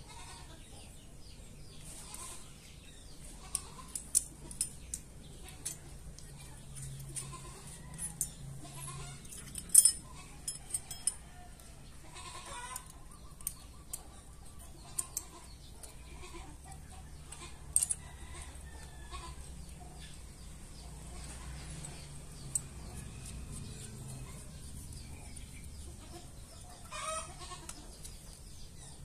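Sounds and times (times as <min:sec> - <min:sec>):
light metallic clicks and clinks: 0:03.4 - 0:26.9.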